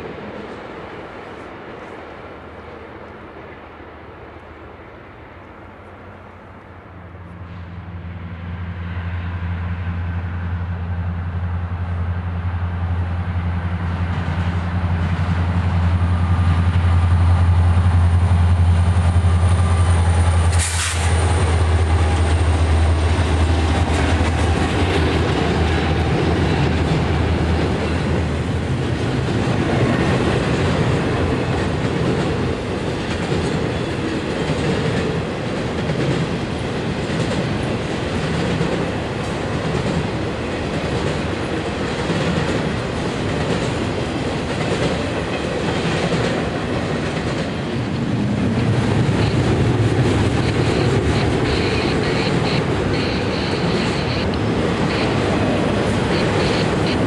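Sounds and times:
diesel locomotives running: 0.0 - 57.0
train wheel clatter: 13.8 - 57.0.

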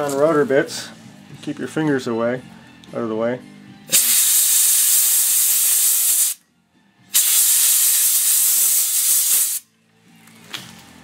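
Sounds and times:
air sprayer hissing: 3.9 - 6.4, 7.1 - 9.6.

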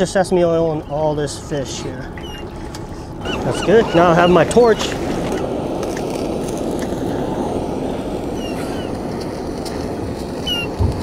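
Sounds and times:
gas torch flame rushing: 2.6 - 11.0.

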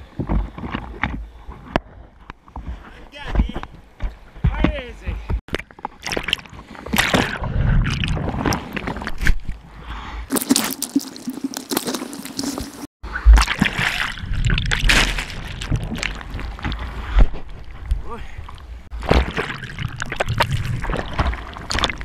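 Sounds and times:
seawater splashing and sloshing: 10.3 - 22.0.

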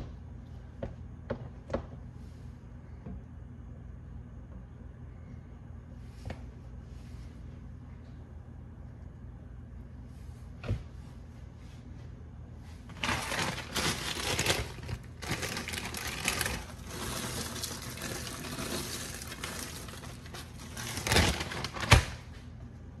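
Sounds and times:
plastic bag crinkling: 12.9 - 22.2.

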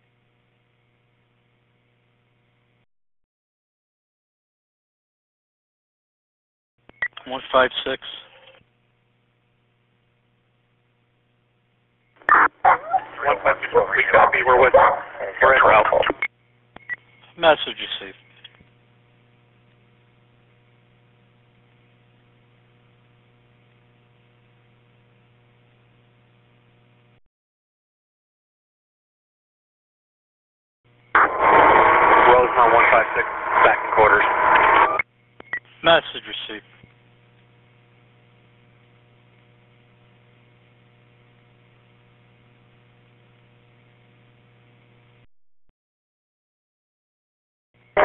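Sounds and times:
faint radio hum and hiss: 6.9 - 27.2, 30.9 - 45.2.

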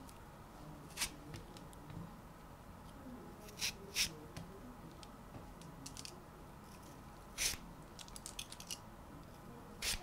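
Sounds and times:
peeler scraping vegetable: 7.4 - 7.6, 9.8 - 10.0.

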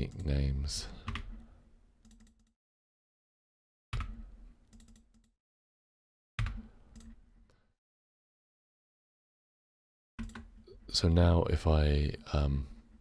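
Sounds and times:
typing on computer keyboard: 2.0 - 2.5, 4.0 - 5.3, 10.2 - 10.5.

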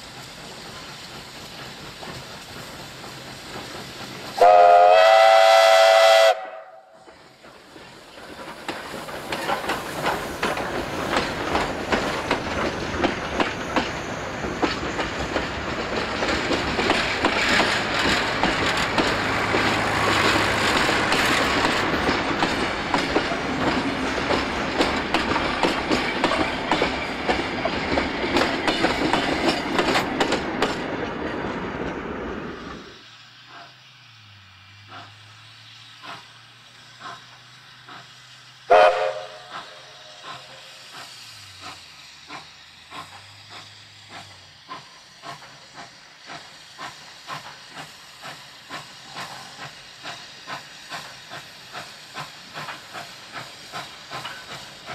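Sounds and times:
train wheels clicking over rail joints: 0.0 - 54.9
steam locomotive whistle blast: 4.4 - 7.0, 38.7 - 40.7.

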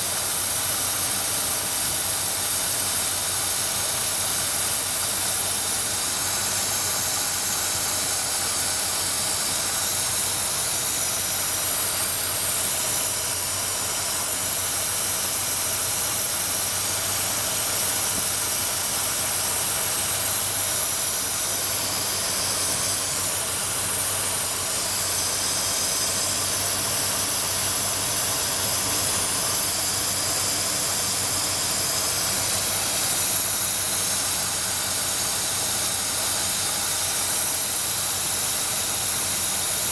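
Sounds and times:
engine idling with steady hiss: 0.0 - 39.9.

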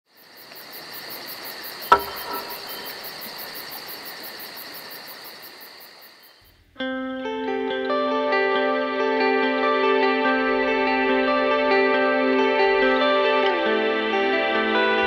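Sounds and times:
crickets chirping: 0.1 - 6.7
sharp knock: 1.9 - 3.0
guitar music: 6.8 - 15.0.

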